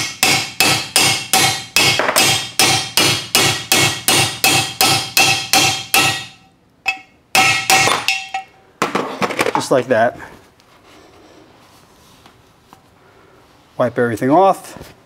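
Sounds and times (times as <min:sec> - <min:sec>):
hammer striking metal: 0:00.0 - 0:08.6.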